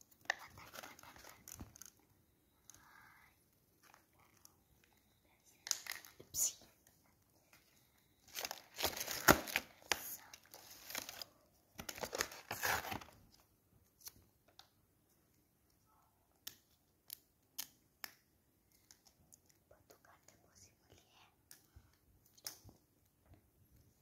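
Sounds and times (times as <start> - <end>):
packaging rustling and crinkling: 8.2 - 13.2.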